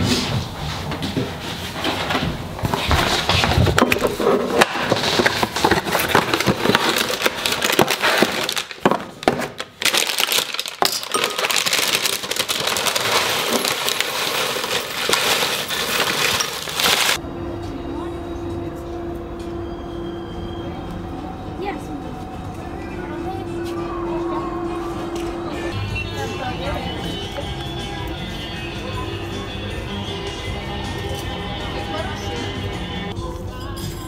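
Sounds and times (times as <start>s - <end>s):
plastic bag crinkling: 4.8s - 17.2s.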